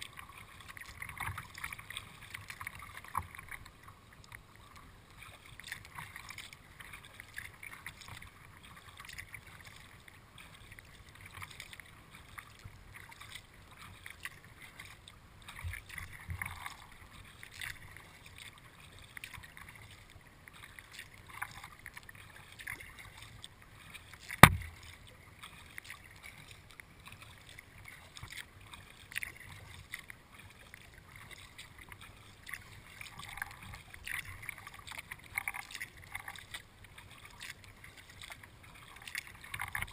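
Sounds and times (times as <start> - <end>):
paddle splashes and drips: 0.0 - 39.9
water lapping at hull: 0.0 - 39.9
sharp knock: 24.4 - 24.8.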